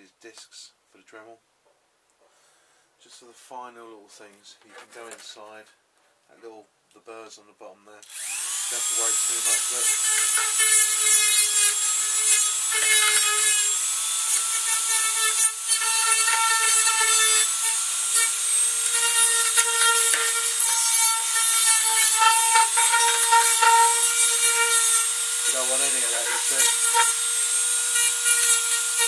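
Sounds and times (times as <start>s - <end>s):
rotary tool motor whine: 8.1s - 29.0s.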